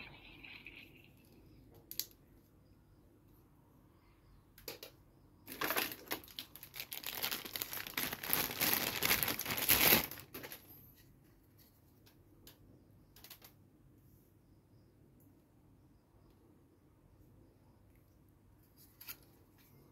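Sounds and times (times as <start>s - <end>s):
plastic packaging crinkling: 5.5s - 10.7s.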